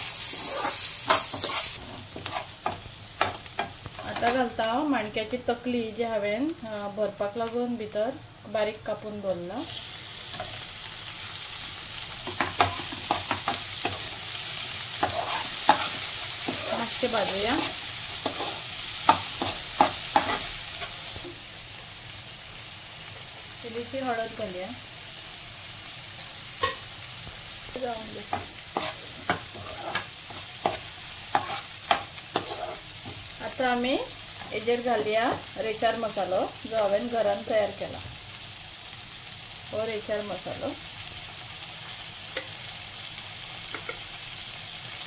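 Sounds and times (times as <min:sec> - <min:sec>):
squid sizzling in hot oil: 0:00.0 - 0:45.0
spatula scraping frying pan: 0:00.1 - 0:04.4, 0:15.0 - 0:20.5, 0:28.3 - 0:33.2.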